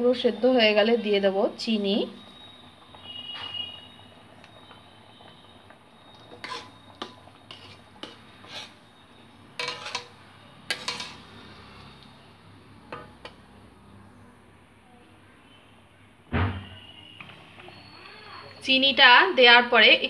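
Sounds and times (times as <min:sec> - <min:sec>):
metal ladle scraping metal pot: 0:06.3 - 0:08.9, 0:09.6 - 0:11.4.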